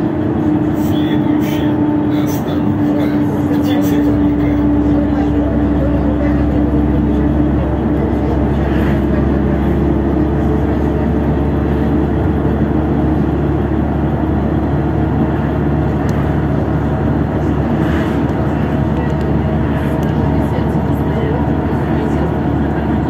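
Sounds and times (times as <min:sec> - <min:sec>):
bus engine drone and road noise: 0:00.0 - 0:23.0.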